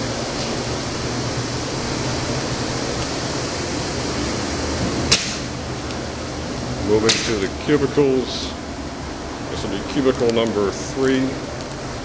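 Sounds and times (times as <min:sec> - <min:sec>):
sharp click: 0:05.1 - 0:05.5.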